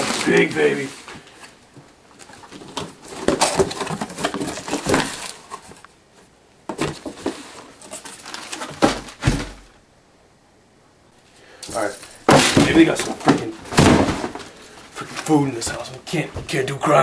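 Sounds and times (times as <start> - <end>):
heavy thumps: 8.7 - 9.8, 12.2 - 14.7.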